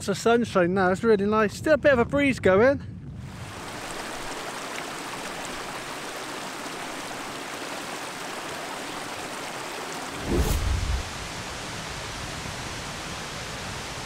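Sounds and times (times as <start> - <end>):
stream rushing over rocks: 3.4 - 13.8.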